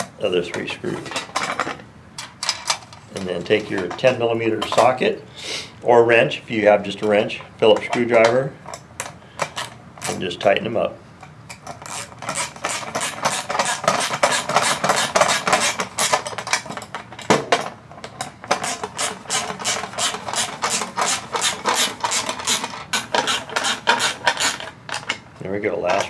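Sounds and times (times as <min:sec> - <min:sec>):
screws clicking against nylon nuts: 0:11.8 - 0:16.3.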